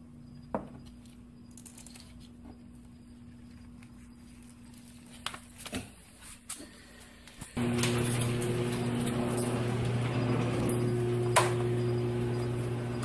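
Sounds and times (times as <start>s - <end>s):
low hum: 7.6s - 13.0s.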